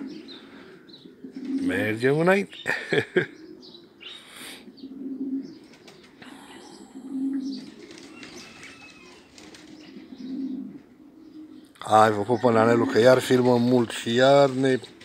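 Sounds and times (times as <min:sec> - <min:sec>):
pigeons cooing: 0:00.0 - 0:15.0
wings fluttering: 0:05.6 - 0:06.4, 0:07.5 - 0:10.1.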